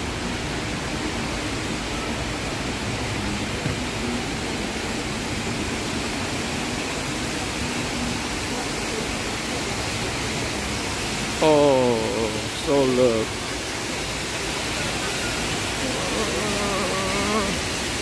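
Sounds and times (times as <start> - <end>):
indoor waterfall rushing: 0.0 - 18.0.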